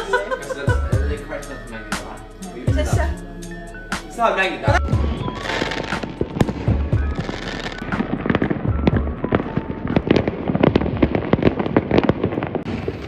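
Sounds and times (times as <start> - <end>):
fireworks bangs and crackles: 4.8 - 13.0.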